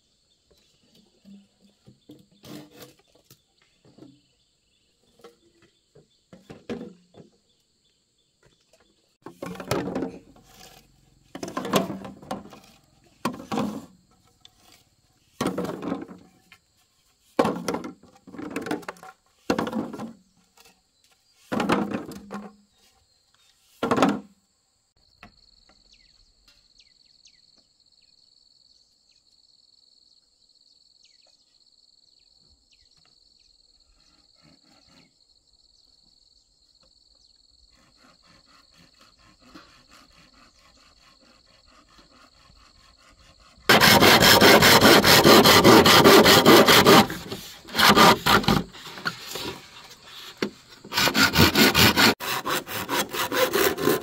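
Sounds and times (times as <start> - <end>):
hand tool rasping bamboo: 9.3 - 16.0, 37.8 - 43.1, 43.7 - 54.0.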